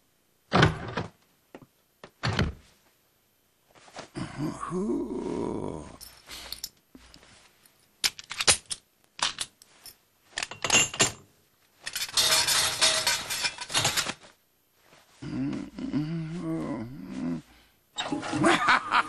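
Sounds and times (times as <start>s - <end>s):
metallic lock clicks and rattles: 8.0s - 9.6s.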